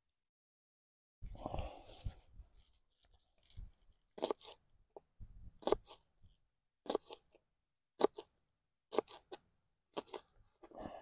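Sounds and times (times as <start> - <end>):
knife chopping spring onions: 4.2 - 4.6, 5.5 - 6.1, 6.8 - 7.4, 8.0 - 10.3.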